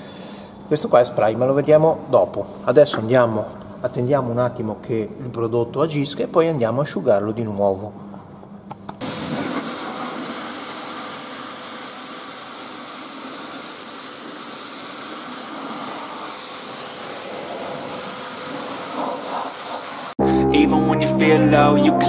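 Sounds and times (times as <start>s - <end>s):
high motor whine: 9.0s - 19.3s
air blower rushing hiss: 9.0s - 20.2s.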